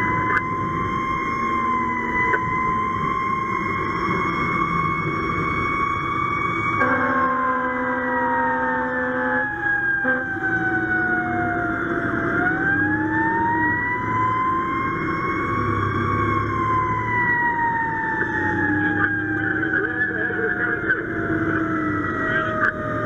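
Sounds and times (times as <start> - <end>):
fire truck siren wailing: 0.0 - 23.0
steady horn tone: 6.8 - 10.4.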